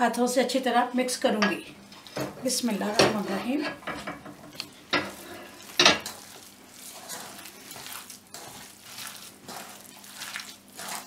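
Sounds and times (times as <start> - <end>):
hand mixing wet mince: 4.5 - 11.0.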